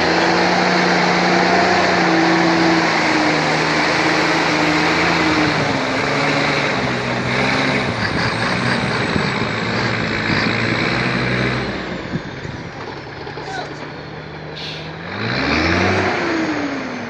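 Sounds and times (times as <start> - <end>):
truck diesel engine under load: 0.0 - 17.0.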